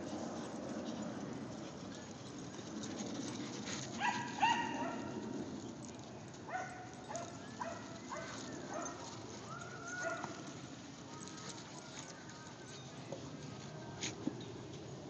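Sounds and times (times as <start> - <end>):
dogs yipping and barking: 1.2 - 12.9.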